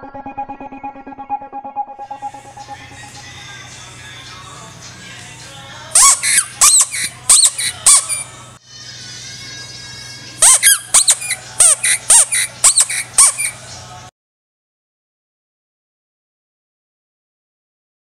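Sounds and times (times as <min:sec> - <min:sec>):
toy whistle squeaky chirps: 0:06.0 - 0:08.4, 0:10.4 - 0:13.6.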